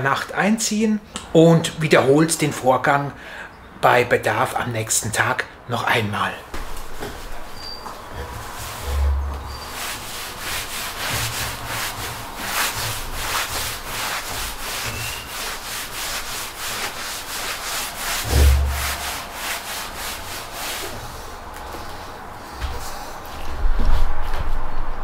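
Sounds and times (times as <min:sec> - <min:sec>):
cloth rubbing wooden table: 0:06.6 - 0:21.3
dull low thump: 0:18.2 - 0:19.3.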